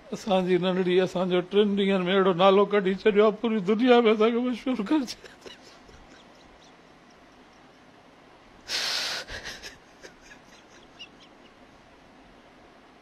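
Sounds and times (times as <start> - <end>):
man sobbing: 4.7 - 6.5, 8.7 - 11.4.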